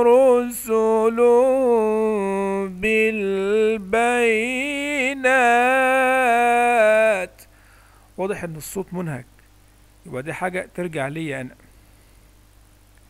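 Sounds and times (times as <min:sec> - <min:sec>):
man reciting melodic chant: 0:00.0 - 0:07.5, 0:08.2 - 0:09.3, 0:10.0 - 0:11.7
reciter breathing: 0:07.4 - 0:08.2.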